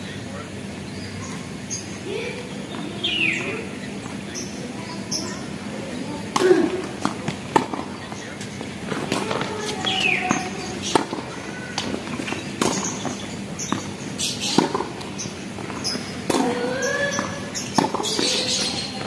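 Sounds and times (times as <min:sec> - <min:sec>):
rackets striking tennis ball: 0:06.3 - 0:19.0
tennis ball bouncing on court: 0:06.3 - 0:19.0.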